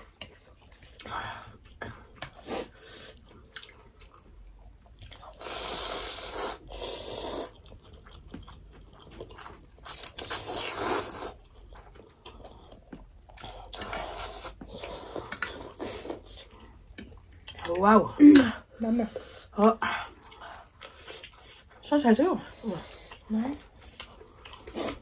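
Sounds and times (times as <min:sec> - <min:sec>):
chewing: 0:00.0 - 0:21.8, 0:22.4 - 0:25.0
people slurping noodles: 0:05.3 - 0:07.6, 0:10.2 - 0:11.4, 0:22.6 - 0:25.0.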